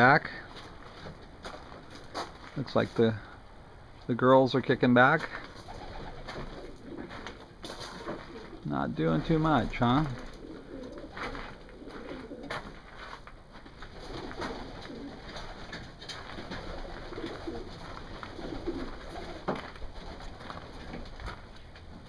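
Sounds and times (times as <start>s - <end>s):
pigeons cooing: 5.4s - 8.7s, 10.0s - 12.8s, 13.9s - 21.0s.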